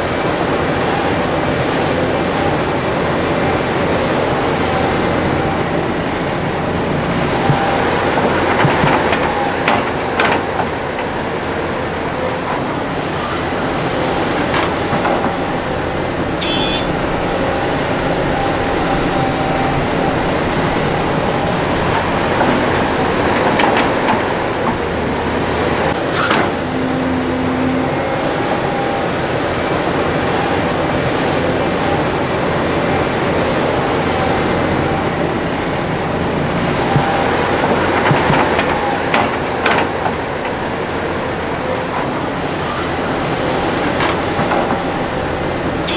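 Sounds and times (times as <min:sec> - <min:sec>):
diesel engine running under load: 0:00.0 - 0:45.9.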